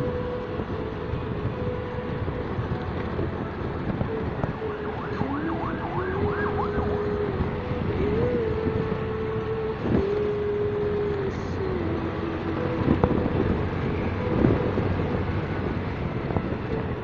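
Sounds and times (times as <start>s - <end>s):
siren wailing: 0.0s - 9.5s
wind noise: 0.0s - 17.0s.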